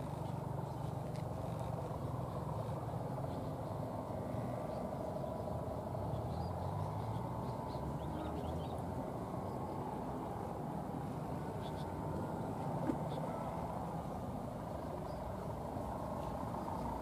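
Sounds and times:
diesel locomotive engine rumbling: 0:00.0 - 0:17.0.

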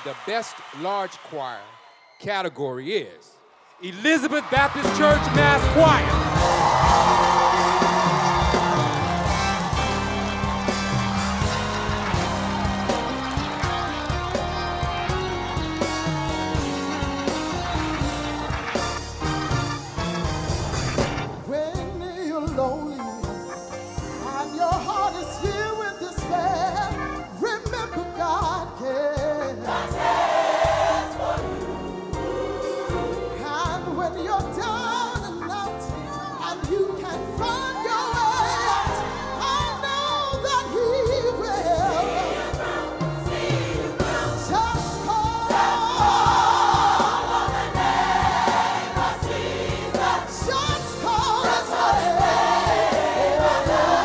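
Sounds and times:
instrumental accompaniment with beat: 0:03.9 - 0:54.0
choir singing: 0:05.1 - 0:13.9, 0:29.4 - 0:33.9, 0:41.5 - 0:54.0.

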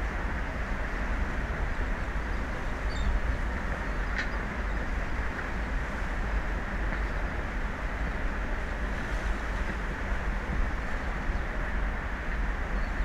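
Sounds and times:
open sea noise: 0:00.0 - 0:13.0
wind rumble on microphone: 0:00.0 - 0:13.0.

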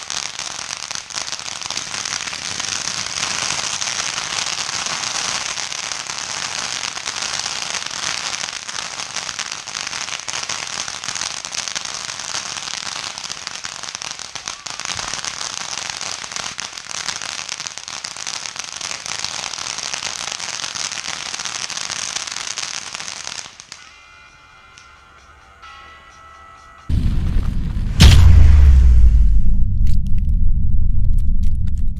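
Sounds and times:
firework fountain hissing and crackling: 0:00.0 - 0:24.1.

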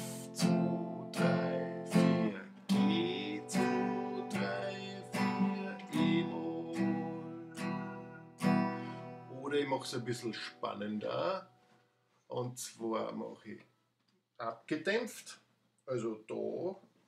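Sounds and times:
acoustic guitar strumming: 0:00.0 - 0:11.7.

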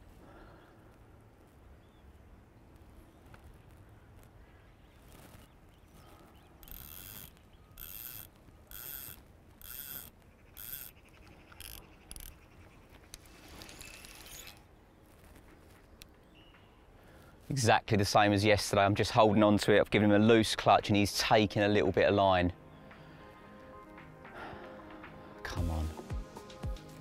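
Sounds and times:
fishing reel ratcheting: 0:06.6 - 0:12.4, 0:13.6 - 0:14.6.

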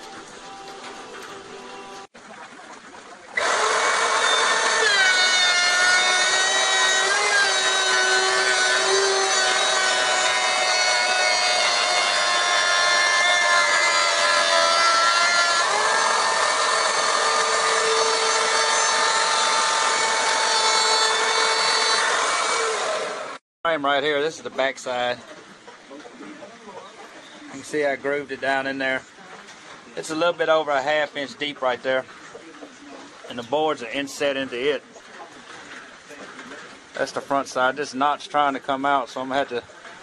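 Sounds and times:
power tool cutting wood: 0:03.4 - 0:23.4.

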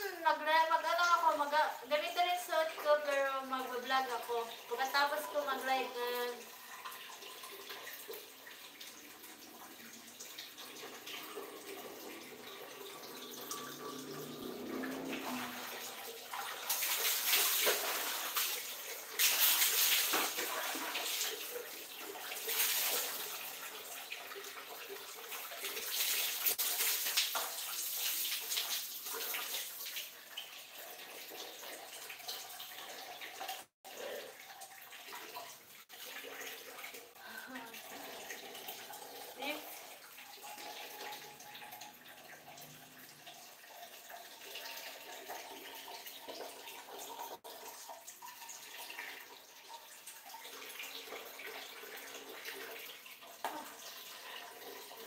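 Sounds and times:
water splashing on tiled floor: 0:06.4 - 0:30.1.

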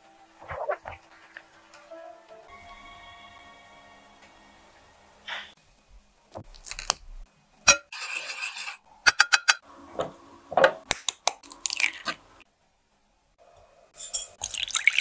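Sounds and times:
kitchen utensils clinking: 0:14.0 - 0:14.5.

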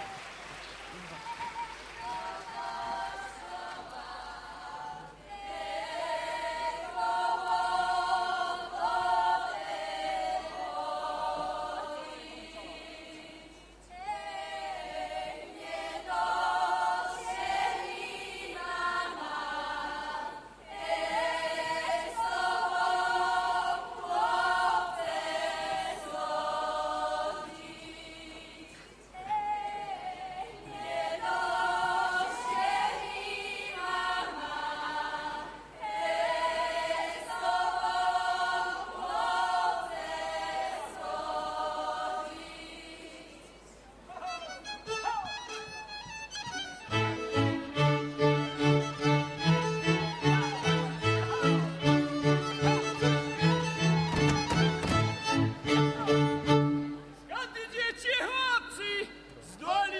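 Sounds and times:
group singing unaccompanied: 0:02.1 - 0:43.6.

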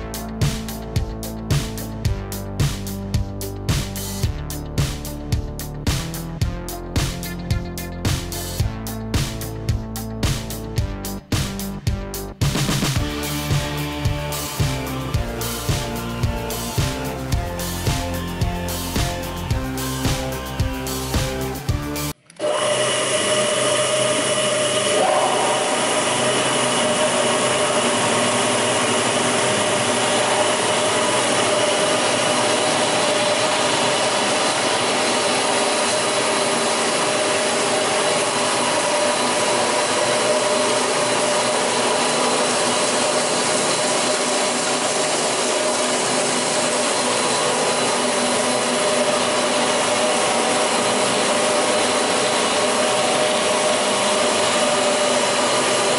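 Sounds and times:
saw whirring: 0:13.0 - 0:55.9.

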